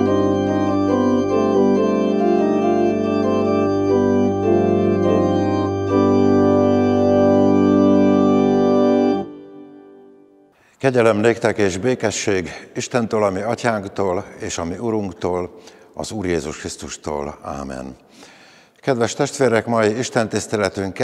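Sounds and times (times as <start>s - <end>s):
church organ playing chords: 0.0s - 11.2s.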